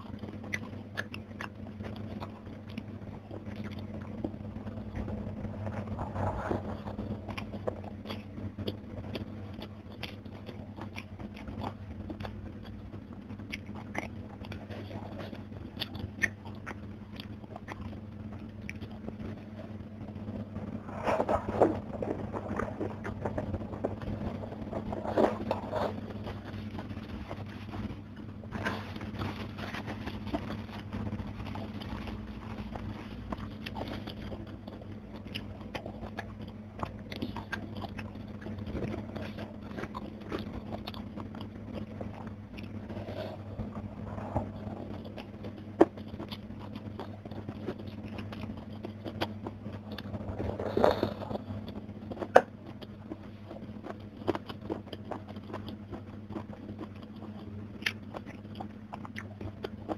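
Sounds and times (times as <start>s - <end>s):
chewing and crunching food: 0.0s - 59.9s
steady low hum: 0.0s - 59.9s
wet mouth clicks: 13.4s - 17.9s.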